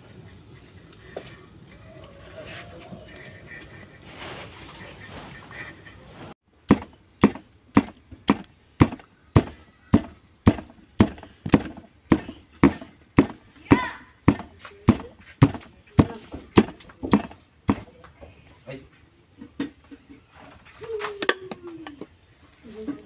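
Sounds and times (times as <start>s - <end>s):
dull thuds of meat pounding: 6.6s - 17.9s.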